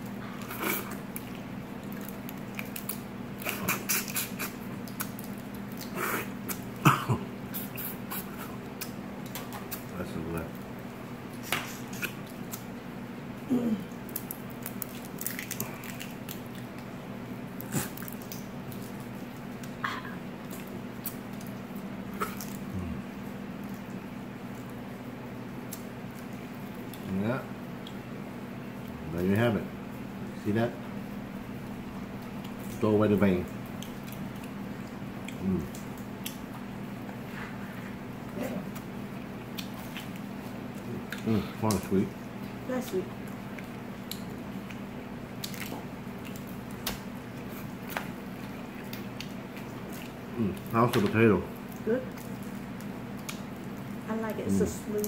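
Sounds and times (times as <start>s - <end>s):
steady low hum: 0.0s - 55.0s
wet chewing and mouth clicks: 0.2s - 6.7s, 11.3s - 12.7s, 13.9s - 17.0s, 17.6s - 23.0s, 32.1s - 32.8s, 33.4s - 54.0s
crawfish shells cracking: 0.4s - 6.7s, 13.9s - 19.8s, 20.4s - 22.7s, 43.2s - 54.0s
person humming mm: 13.5s - 13.9s, 22.7s - 23.1s
wet meat squishing: 43.2s - 54.0s.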